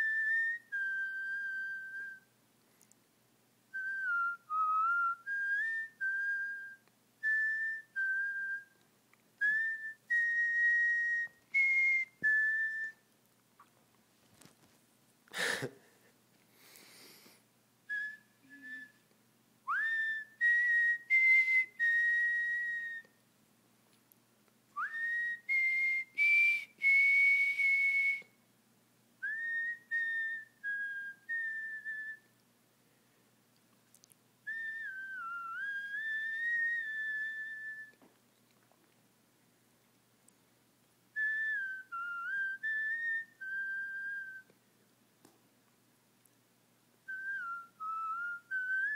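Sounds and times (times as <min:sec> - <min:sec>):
person whistling a tune: 0:00.0 - 0:02.3, 0:03.7 - 0:08.8, 0:09.4 - 0:13.1, 0:17.9 - 0:19.0, 0:19.7 - 0:23.2, 0:24.8 - 0:28.4, 0:29.2 - 0:32.3, 0:34.5 - 0:38.0, 0:41.2 - 0:44.5, 0:47.1 - 0:48.9.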